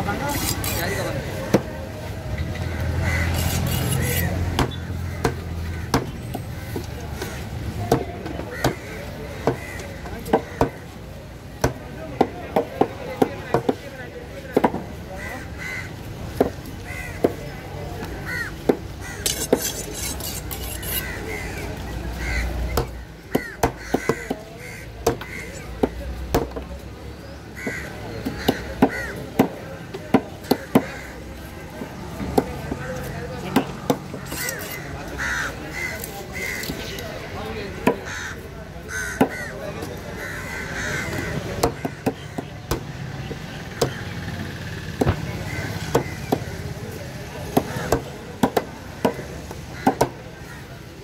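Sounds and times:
crows cawing: 2.6 - 4.3, 5.0 - 7.6, 8.4 - 11.0, 15.2 - 16.0, 16.8 - 17.4, 18.2 - 26.0, 27.5 - 29.6, 30.5 - 31.4, 33.8 - 36.8, 37.8 - 42.8, 45.4 - 46.8, 48.9 - 50.9.

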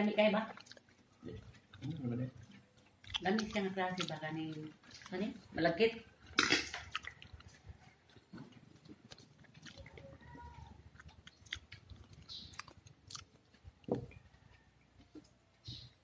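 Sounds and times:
person chewing wetly: 0.0 - 15.8.

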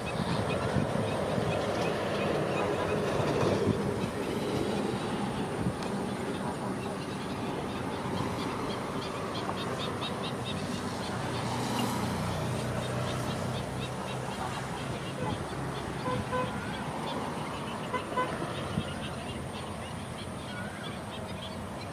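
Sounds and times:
flamingos honking: 12.8 - 20.9.

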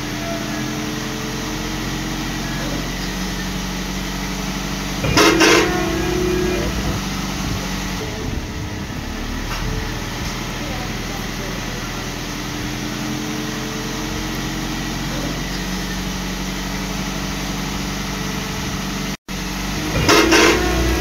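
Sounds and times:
vehicle engine running: 0.0 - 21.0
car horn honking: 5.0 - 12.0, 20.0 - 21.0.

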